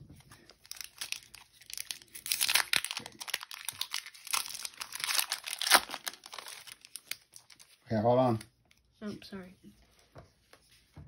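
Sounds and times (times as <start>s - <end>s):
foil wrapper crinkling and tearing: 0.4s - 8.4s.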